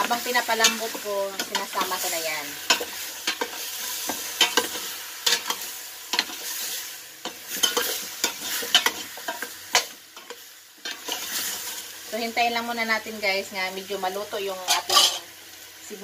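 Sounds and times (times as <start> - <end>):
food sizzling in a pot: 0.0 - 16.0
spoon scraping and knocking pot: 14.7 - 15.2.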